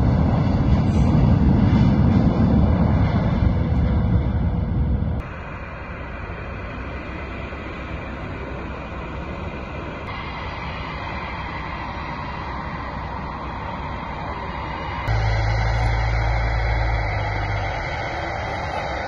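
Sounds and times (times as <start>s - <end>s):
distant jet engines rumbling: 0.0s - 19.0s.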